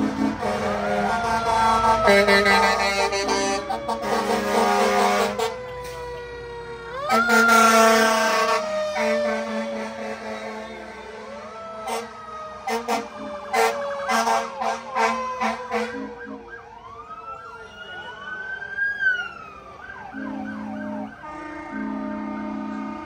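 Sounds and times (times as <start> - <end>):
siren wailing: 0.3 - 23.0
steady siren tone: 0.3 - 23.0
short pitched horn blasts: 21.2 - 23.0.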